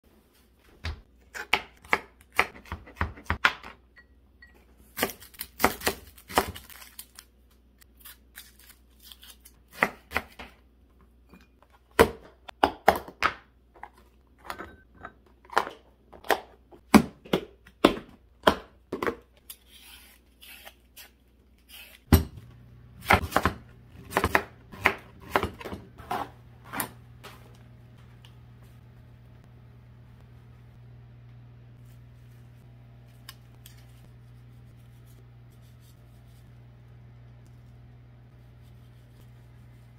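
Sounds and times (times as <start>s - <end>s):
low steady hum: 22.1s - 39.9s.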